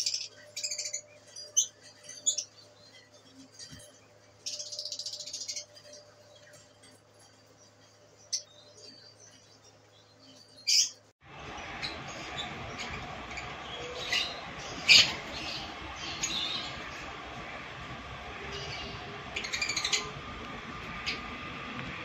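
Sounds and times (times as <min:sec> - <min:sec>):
lovebirds chirping: 0:00.0 - 0:20.3.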